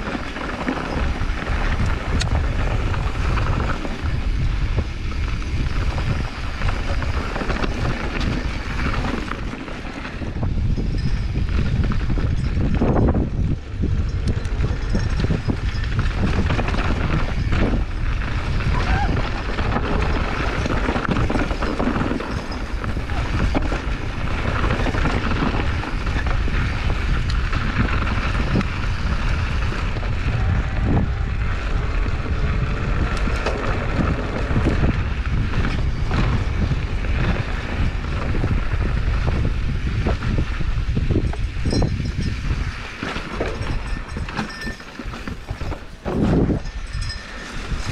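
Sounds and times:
bike knocks and rattles: 0.0 - 47.9
tires rumbling over dirt trail: 0.0 - 47.9
wind rushing over microphone: 0.0 - 47.9.

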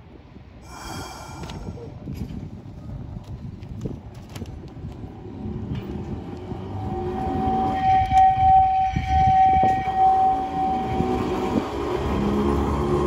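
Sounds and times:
tram rumble: 0.0 - 13.0
tram wheel squeal: 6.0 - 13.0.

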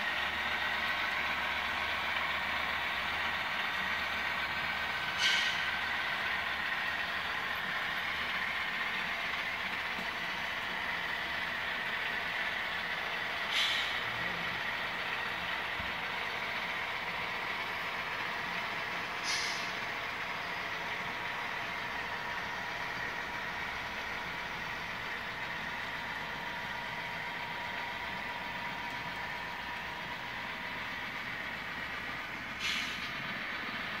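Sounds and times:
constant whine: 0.0 - 34.0
short hisses: 5.2 - 5.7, 13.5 - 14.0, 19.2 - 19.7, 32.6 - 33.1.

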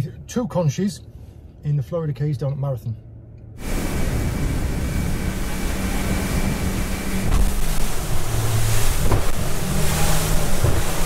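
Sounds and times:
outboard motor drone: 3.6 - 11.0
water rushing from wake: 3.6 - 11.0
wind buffeting microphone: 3.6 - 11.0.

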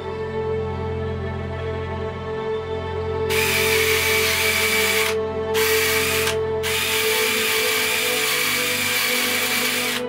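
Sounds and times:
wire-wheel brush whining on steel: 3.3 - 10.0.

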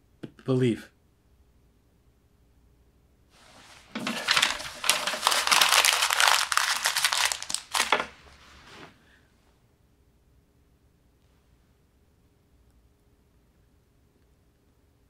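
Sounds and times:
bedsheets rustling: 3.4 - 9.0.

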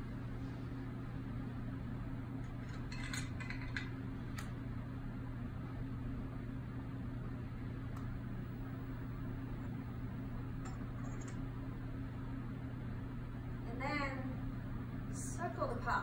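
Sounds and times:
steady low hum: 0.0 - 16.0
utensils clinking on porcelain: 2.7 - 3.9.

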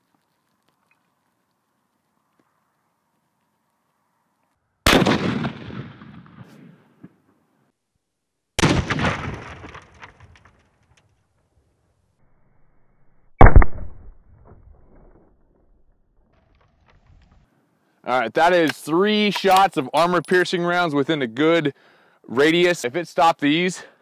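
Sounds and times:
rifle shots: 4.9 - 6.6, 8.6 - 10.0, 13.4 - 14.2.

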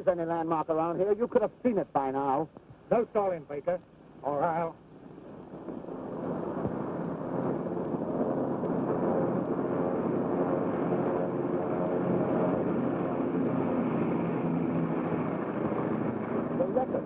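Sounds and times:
propeller airplane engines droning: 0.0 - 17.0.

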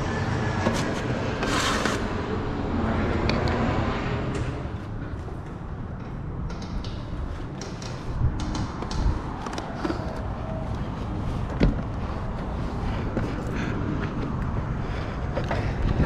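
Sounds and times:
steady low rumble: 2.0 - 16.0
knocks and scuffs of climbing: 4.3 - 16.0.

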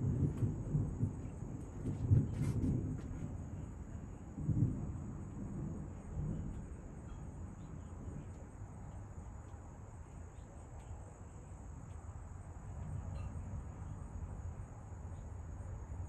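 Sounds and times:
distant thunder rumbling: 0.0 - 10.0.

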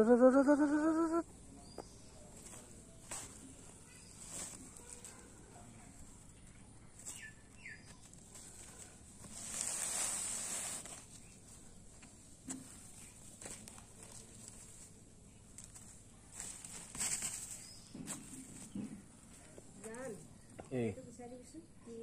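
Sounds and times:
plastic sack rustling: 2.4 - 6.2, 7.0 - 18.8.

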